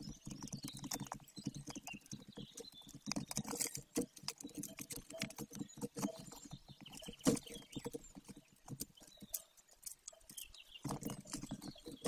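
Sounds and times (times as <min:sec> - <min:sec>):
bird tearing at prey on nest: 0:02.8 - 0:06.4.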